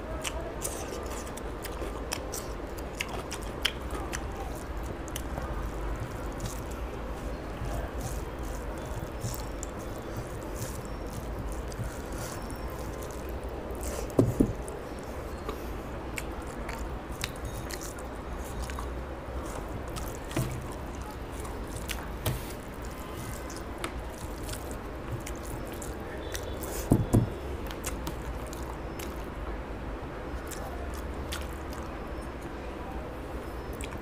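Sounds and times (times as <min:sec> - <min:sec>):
person chewing: 0:00.2 - 0:29.3, 0:30.4 - 0:31.9
wet squishy mixing of rice: 0:02.8 - 0:14.2.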